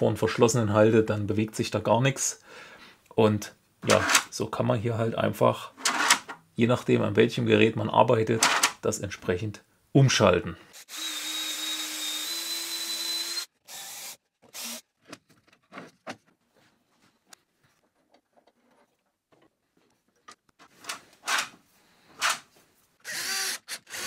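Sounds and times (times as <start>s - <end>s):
cordless drill running: 10.8s - 14.8s, 23.0s - 24.0s.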